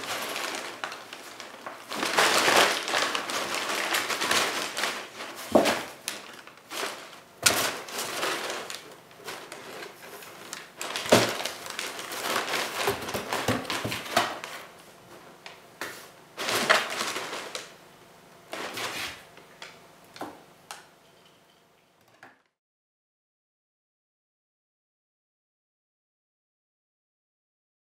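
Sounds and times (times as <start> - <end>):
paper crinkling in a box: 0.0 - 15.6, 16.4 - 17.8, 18.5 - 19.3.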